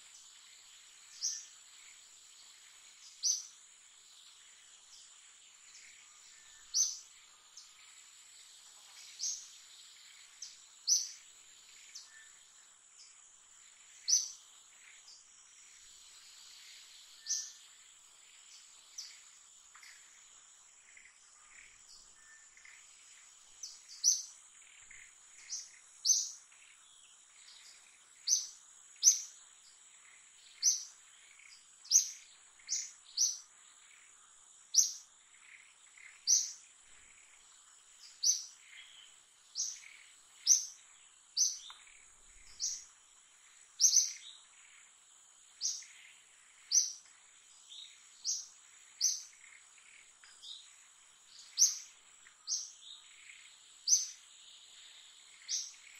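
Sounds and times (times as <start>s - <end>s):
bird chirping: 0.0s - 55.9s
insect drone: 0.0s - 55.9s.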